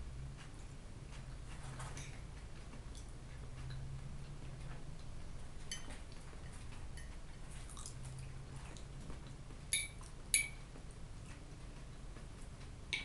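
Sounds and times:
person chewing: 7.6s - 8.9s
fork clinking on plate: 9.7s - 10.6s.

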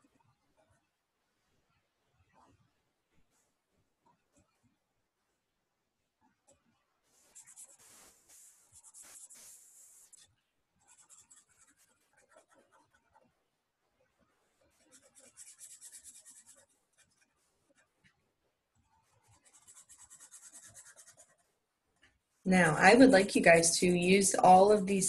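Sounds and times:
marker scribbling on paper: 7.2s - 13.2s, 14.7s - 17.9s, 19.0s - 21.5s.

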